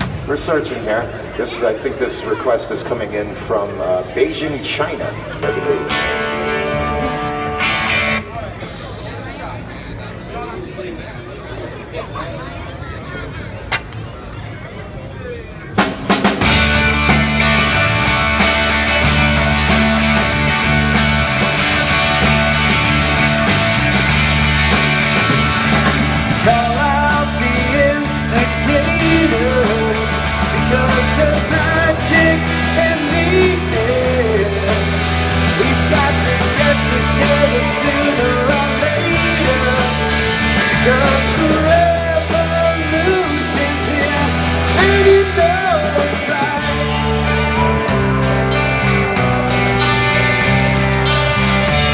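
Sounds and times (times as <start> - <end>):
live rock band playing: 4.7 - 8.6, 15.7 - 51.9
man singing: 26.3 - 47.7.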